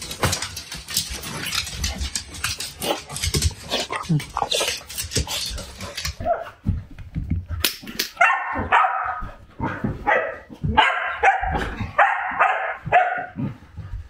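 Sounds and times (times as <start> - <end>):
dog barking and crying: 8.2 - 13.4.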